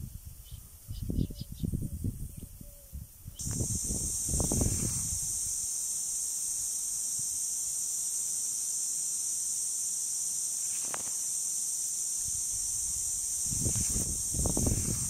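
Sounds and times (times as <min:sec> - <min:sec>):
sprinkler spraying water: 0:03.4 - 0:15.0.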